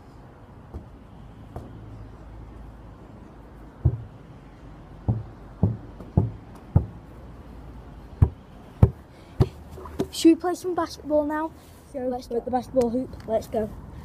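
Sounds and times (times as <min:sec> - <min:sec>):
ball thudding: 0:03.8 - 0:04.2, 0:05.0 - 0:07.0, 0:08.2 - 0:10.2.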